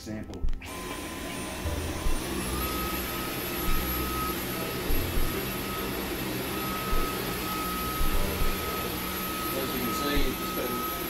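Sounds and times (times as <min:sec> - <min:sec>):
vacuum cleaner running: 0:00.4 - 0:11.0
low thumps: 0:01.6 - 0:02.9, 0:03.5 - 0:04.1, 0:04.8 - 0:05.6, 0:06.8 - 0:07.2, 0:08.0 - 0:08.9, 0:10.1 - 0:10.5.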